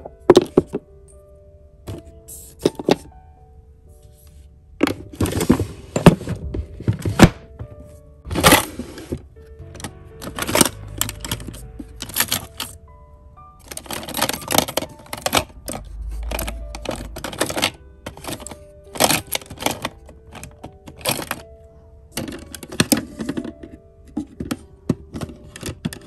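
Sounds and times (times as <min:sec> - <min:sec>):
small plastic items clattering: 0:09.8 - 0:12.7, 0:13.6 - 0:21.5, 0:22.2 - 0:26.0.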